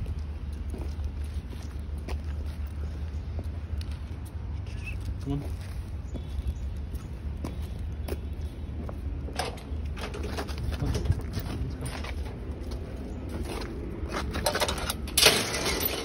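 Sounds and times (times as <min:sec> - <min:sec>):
footsteps and rustling: 0:00.0 - 0:16.0
wind noise on microphone: 0:09.3 - 0:12.6
scraping rattle: 0:14.3 - 0:16.0.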